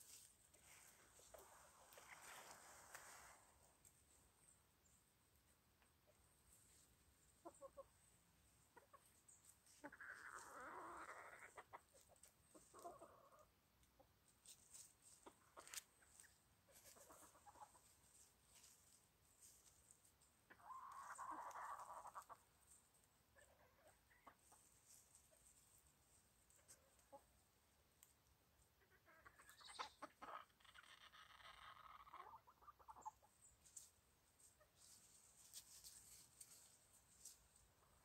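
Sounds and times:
chickens clucking: 0.0s - 38.0s
chicken calls: 6.0s - 14.1s, 14.7s - 18.6s, 20.3s - 25.8s, 28.7s - 36.6s.

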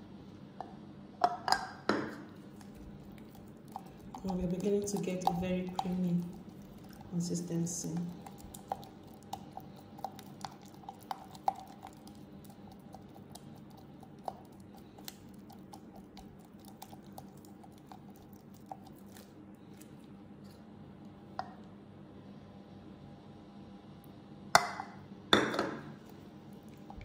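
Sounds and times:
spatula squishing butter: 2.3s - 20.7s.

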